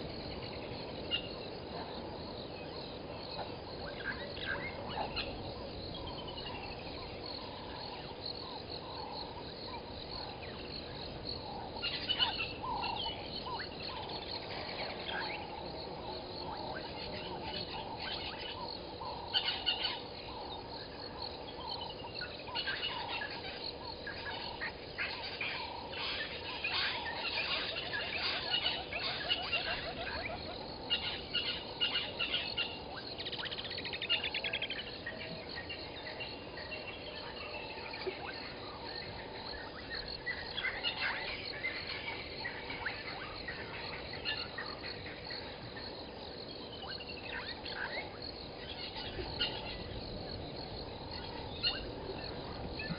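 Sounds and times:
insects and frogs chorus: 0.0 - 52.9
birds chirping and calling: 11.8 - 20.6, 21.5 - 34.9, 39.6 - 45.6, 46.6 - 52.9.

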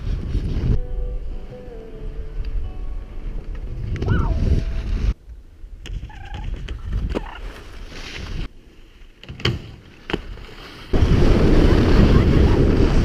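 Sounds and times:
wind buffeting microphone: 0.0 - 0.9, 3.6 - 7.4, 10.9 - 13.0
high gliding call: 0.8 - 5.2.

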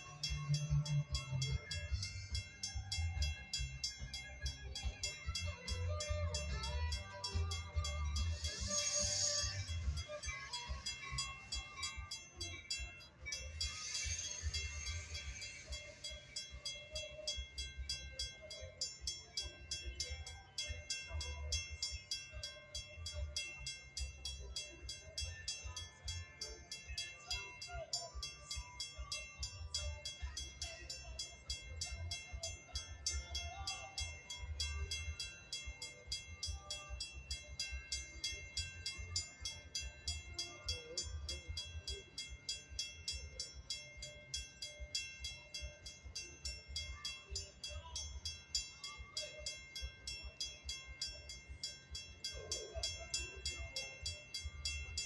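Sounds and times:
crossing warning bell ringing: 0.0 - 55.0.

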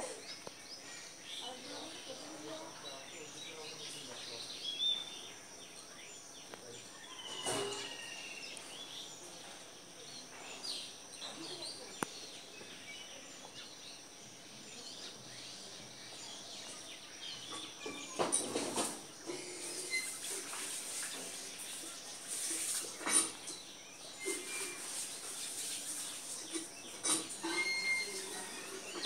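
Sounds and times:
steady high hiss: 18.4 - 29.0.

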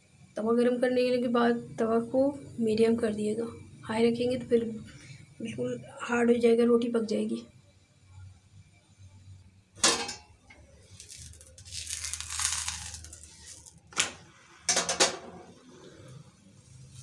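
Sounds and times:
dough sheet rustling scrape: 10.8 - 14.6, 16.6 - 17.0.

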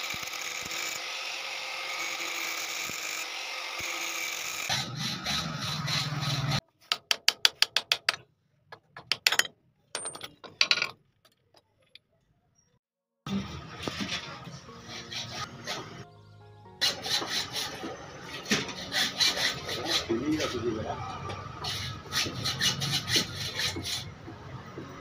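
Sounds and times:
angle grinder cutting steel: 0.0 - 6.6, 16.8 - 20.7
hacksaw strokes on steel tube: 4.7 - 6.6, 14.8 - 16.0, 16.8 - 20.6, 21.6 - 24.1.

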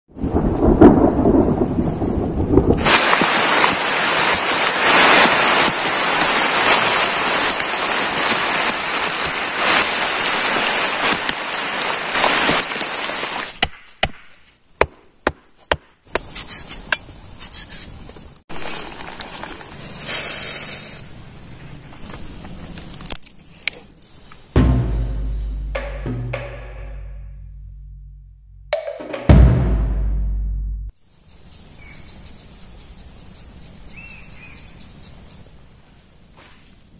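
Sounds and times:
low thunder rumble: 0.2 - 2.9
heavy rain pouring: 0.2 - 13.4
sharp taps of rain: 0.2 - 13.8.

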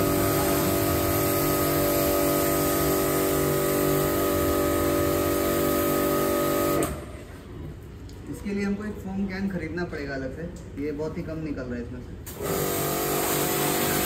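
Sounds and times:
pressure washer motor hum: 0.0 - 7.1, 12.3 - 14.0.

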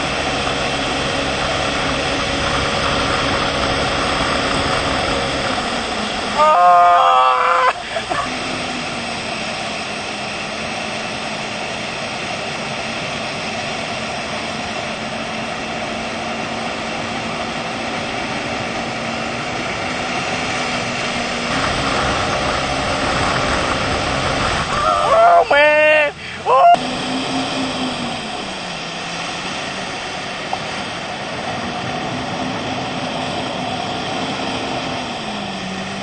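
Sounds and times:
motorboat engine humming: 0.0 - 36.0
wind and rushing water: 0.0 - 36.0
person yelling: 6.4 - 8.2, 24.8 - 26.8.

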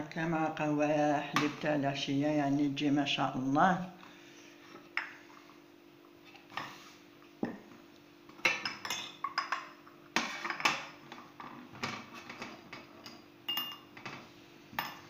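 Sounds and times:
porcelain cup and saucer clinking: 8.5 - 9.8, 13.0 - 14.0.

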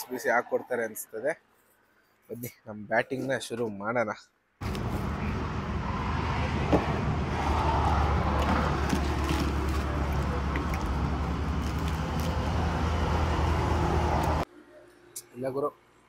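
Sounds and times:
road traffic drone: 4.6 - 14.6.

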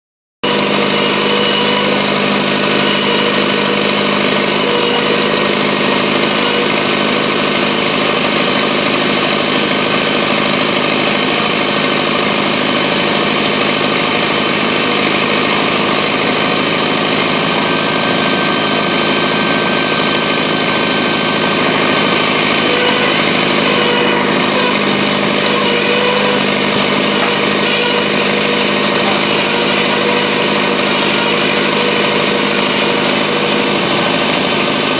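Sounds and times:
drilling rig engine running: 0.4 - 34.9.

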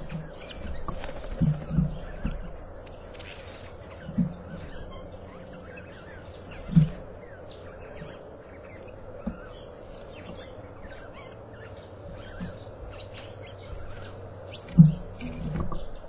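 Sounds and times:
electrical hum: 0.0 - 16.0
small birds chirping: 0.0 - 16.0
low thumps: 6.5 - 8.2, 12.1 - 16.0.

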